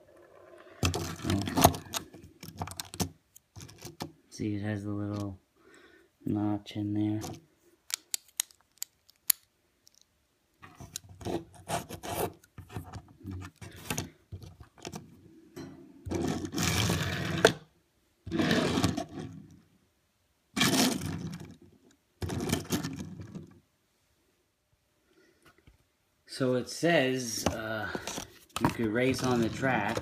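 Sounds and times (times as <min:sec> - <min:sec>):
toy car wheels scraping on wood: 0:11.2 - 0:12.9, 0:16.1 - 0:17.6, 0:18.3 - 0:19.4, 0:20.6 - 0:21.4, 0:27.9 - 0:30.0.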